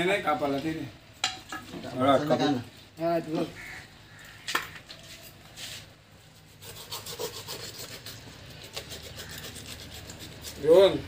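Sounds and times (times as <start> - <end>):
knife rasping through fish flesh: 6.4 - 11.0.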